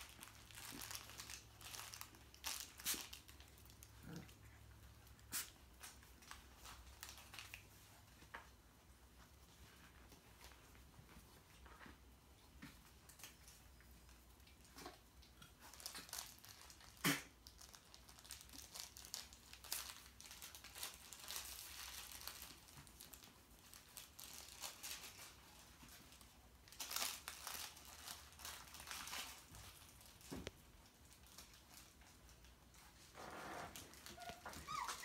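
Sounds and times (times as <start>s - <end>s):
crinkling of toy filling: 0.0s - 8.6s, 12.8s - 35.0s.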